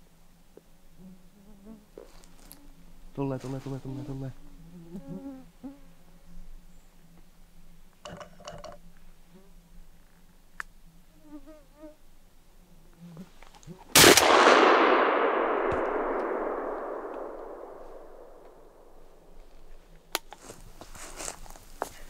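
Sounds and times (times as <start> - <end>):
shotgun shot echoing: 14.0 - 19.2.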